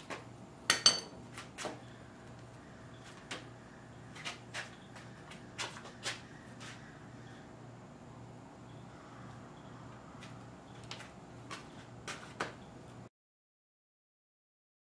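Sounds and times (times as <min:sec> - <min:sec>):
faint low hum: 0:00.5 - 0:13.1.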